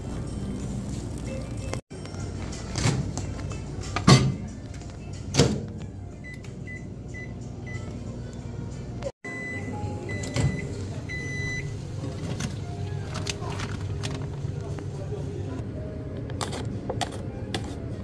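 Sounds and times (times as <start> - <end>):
microwave keypad beeps: 9.2 - 11.8.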